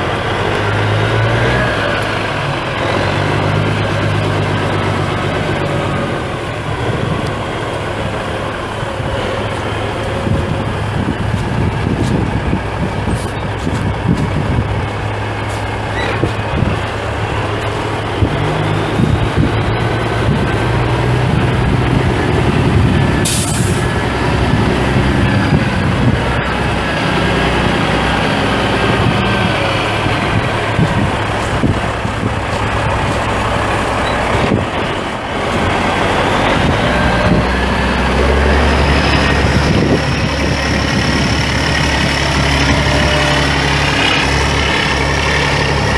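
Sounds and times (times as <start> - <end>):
diesel truck engine running: 0.0 - 45.9
air hiss: 23.2 - 23.9.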